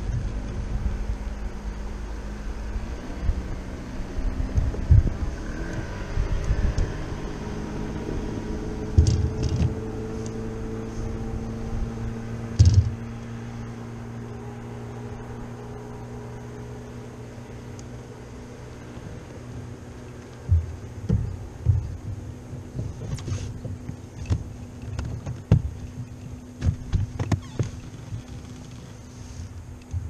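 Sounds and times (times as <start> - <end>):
boat motor humming: 0.0 - 30.0
dull thumps: 12.5 - 13.0, 20.4 - 28.6.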